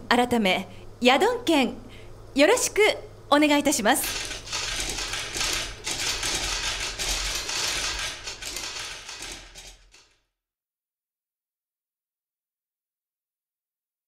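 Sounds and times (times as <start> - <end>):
camera shutters clicking: 4.0 - 10.0.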